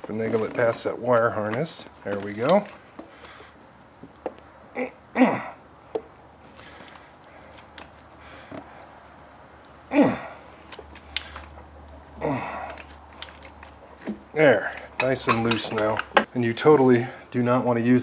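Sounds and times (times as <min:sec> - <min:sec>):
man grunting with effort: 0:04.7 - 0:05.6, 0:09.9 - 0:10.5, 0:12.2 - 0:12.8.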